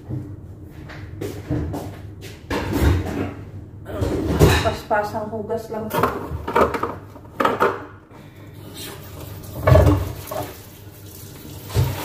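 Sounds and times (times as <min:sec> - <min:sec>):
dishes and glasses clattering: 0:04.0 - 0:04.9.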